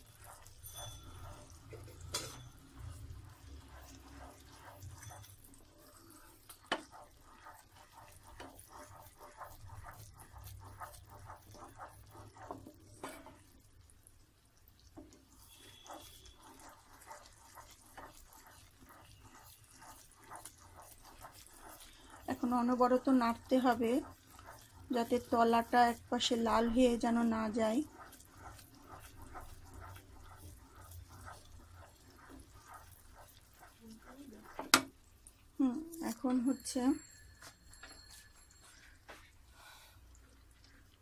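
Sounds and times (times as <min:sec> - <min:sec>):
wooden spatula scraping pan: 0:00.0 - 0:13.6, 0:15.0 - 0:35.1
syrup bubbling in a pan: 0:00.0 - 0:41.0
spatula knocking against pan: 0:34.5 - 0:35.0.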